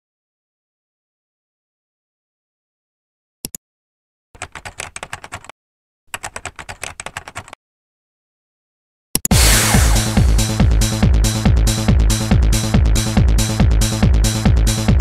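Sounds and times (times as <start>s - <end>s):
keyboard typing: 4.4s - 5.5s, 6.1s - 7.6s
electronic music with steady beat: 9.3s - 11.0s.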